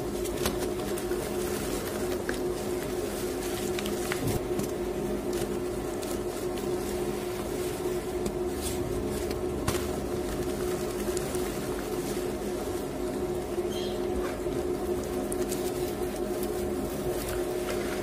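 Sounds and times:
wet chalk crumbling by hand: 0.0 - 13.6
washing machine hum: 0.0 - 18.0.

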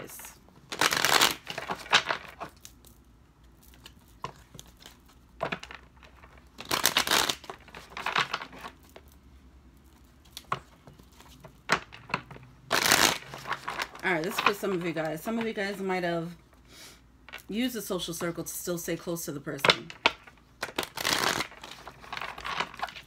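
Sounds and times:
cards shuffling and rustling: 0.0 - 9.2, 9.9 - 15.9, 20.2 - 23.0.

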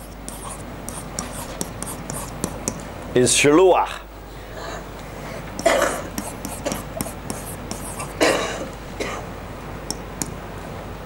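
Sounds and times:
stylus tapping on whiteboard: 0.0 - 2.8, 5.6 - 8.0.

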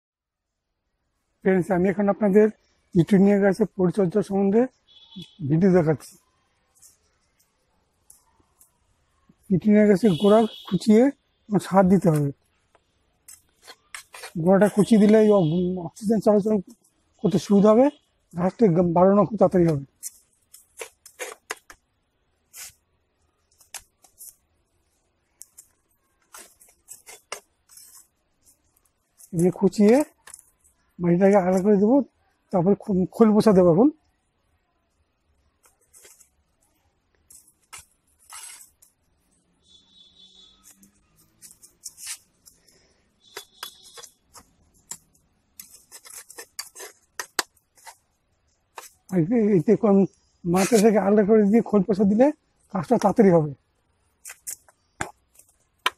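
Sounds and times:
metal blade scraping dry soil: 13.2 - 15.5, 19.6 - 21.8, 22.5 - 22.8, 25.4 - 30.7, 35.6 - 36.4, 37.3 - 38.9, 39.7 - 48.1, 48.7 - 49.5, 50.5 - 51.1.

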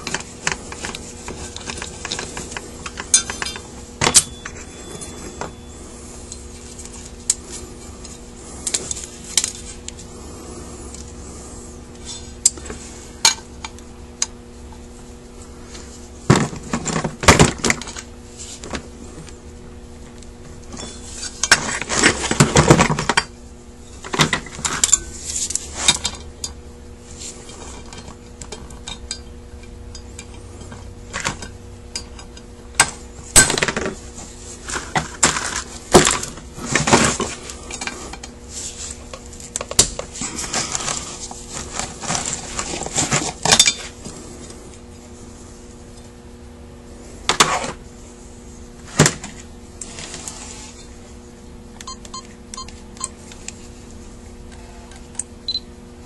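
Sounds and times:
metal parts clinking and scraping: 0.0 - 5.6, 23.9 - 26.3, 40.2 - 44.0
faint steady hum: 0.0 - 56.0.

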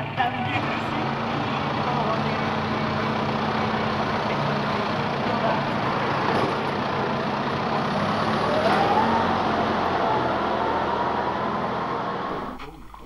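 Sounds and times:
tractor diesel engine running: 0.0 - 13.0
rising whine: 8.3 - 12.6.

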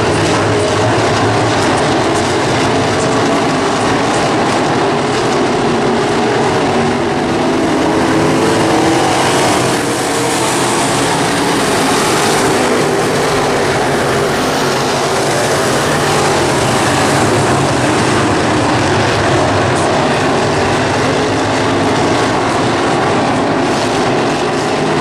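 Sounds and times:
race car engines: 0.0 - 25.0.

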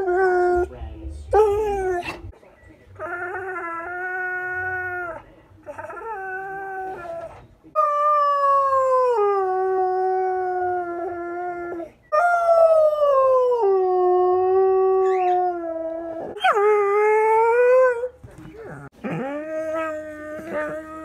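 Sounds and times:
dog howling: 5.8 - 18.1.

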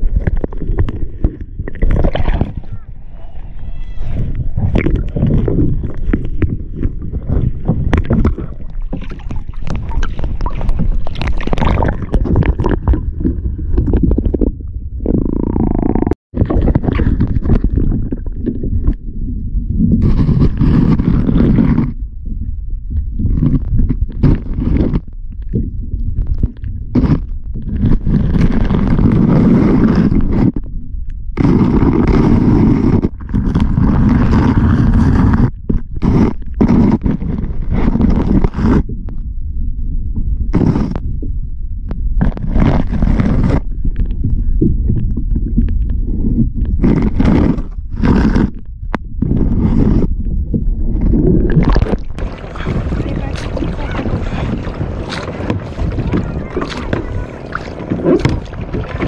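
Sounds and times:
wind rumble on microphone: 0.0 - 59.0
water slapping against boat hull: 4.6 - 13.1, 51.4 - 59.0.

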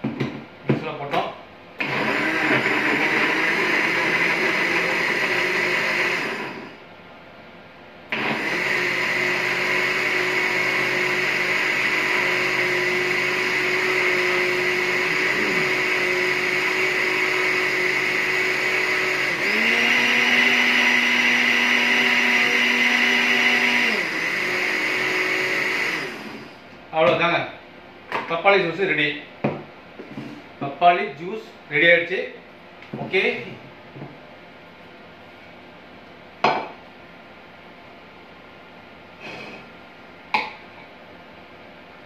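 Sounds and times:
electric blender running: 1.8 - 6.8, 8.1 - 26.7.

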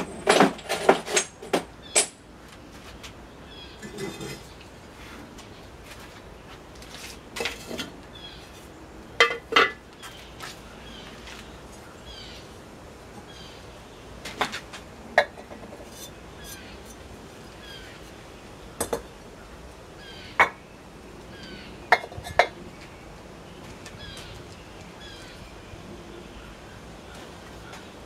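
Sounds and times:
ceramic bowls clinking: 3.8 - 4.5, 9.2 - 9.8, 21.9 - 22.6.

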